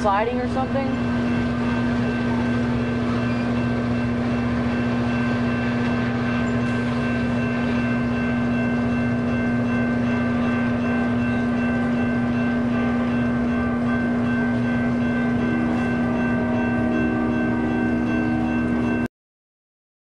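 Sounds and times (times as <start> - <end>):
passenger train rolling past: 0.0 - 19.1.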